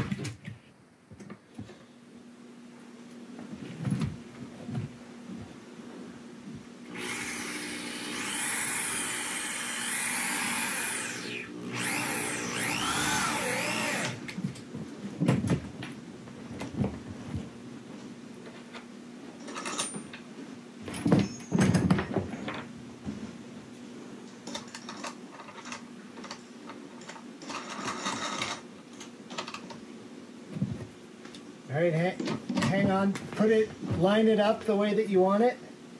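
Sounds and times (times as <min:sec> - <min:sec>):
faint steady hum: 0:00.0 - 0:35.9
electric drill boring through plywood: 0:06.9 - 0:14.3.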